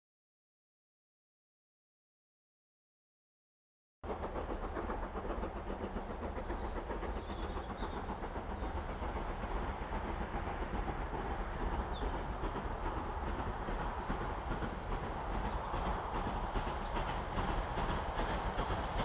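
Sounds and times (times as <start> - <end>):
steam train chuffing: 4.0 - 19.0.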